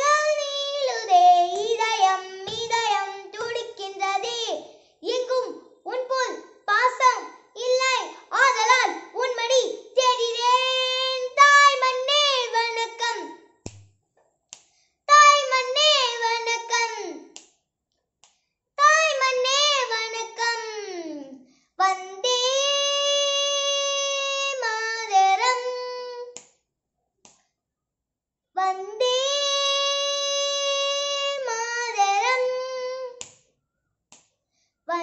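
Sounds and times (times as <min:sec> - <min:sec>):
boy singing unaccompanied: 0:00.0 - 0:13.4, 0:15.1 - 0:17.4, 0:18.8 - 0:26.4, 0:28.6 - 0:33.2.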